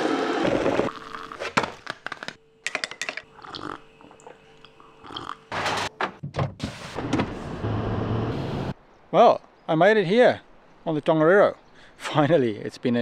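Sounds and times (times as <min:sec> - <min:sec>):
faint steady hum: 0:00.9 - 0:05.5.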